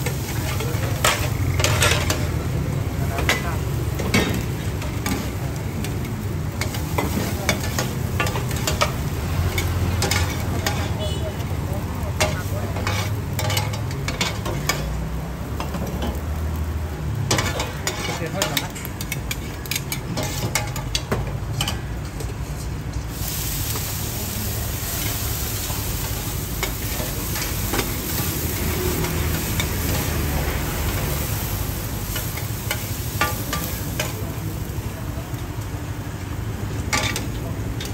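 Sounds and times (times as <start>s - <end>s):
metal spatulas scraping a griddle: 0.0s - 2.3s, 6.6s - 11.0s, 12.2s - 14.9s, 17.3s - 21.0s
loud sizzling hiss: 0.0s - 37.9s.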